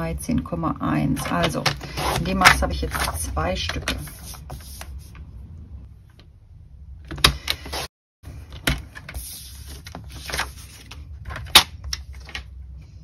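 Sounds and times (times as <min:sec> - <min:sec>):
paper rustling: 0:08.9 - 0:12.4.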